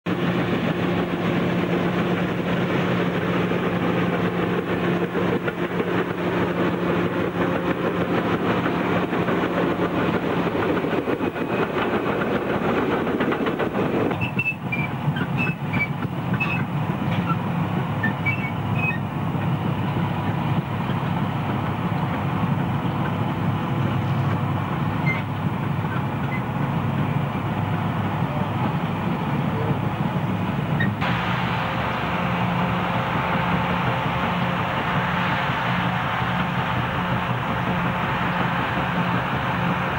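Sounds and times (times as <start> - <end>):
diesel engines under load: 0.1 - 39.9
steel tracks clanking: 0.1 - 39.9
short high squeaks: 14.1 - 17.4, 18.0 - 19.1, 25.0 - 25.3, 30.8 - 31.0.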